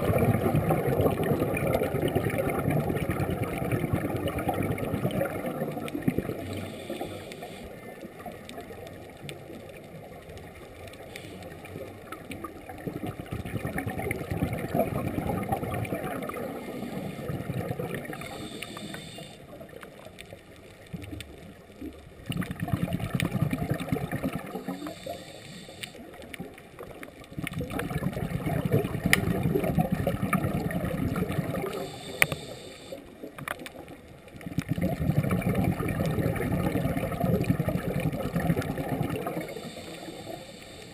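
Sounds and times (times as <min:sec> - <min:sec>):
exhaled bubbles gurgling underwater: 0:00.0 - 0:40.9
regulator hiss on inhalation: 0:06.4 - 0:08.0, 0:11.0 - 0:11.7, 0:16.5 - 0:19.6, 0:24.4 - 0:26.2, 0:31.6 - 0:33.3, 0:39.2 - 0:40.9.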